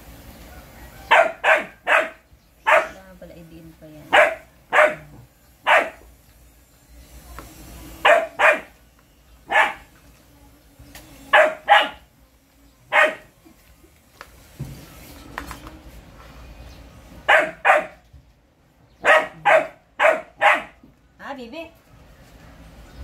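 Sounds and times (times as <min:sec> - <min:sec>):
dog barking: 0:01.0 - 0:03.0, 0:04.1 - 0:06.1, 0:08.0 - 0:08.8, 0:09.5 - 0:09.9, 0:11.3 - 0:12.1, 0:12.9 - 0:13.3, 0:17.2 - 0:18.0, 0:19.0 - 0:20.8.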